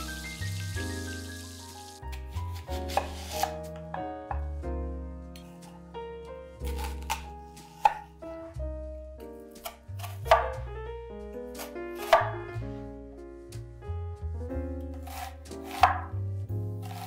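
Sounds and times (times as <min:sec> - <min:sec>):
soft background music: 0:00.0 - 0:17.0
knife slicing onion: 0:02.1 - 0:03.8, 0:06.6 - 0:08.0, 0:09.5 - 0:10.6, 0:11.5 - 0:12.3, 0:15.0 - 0:16.2, 0:16.8 - 0:17.0.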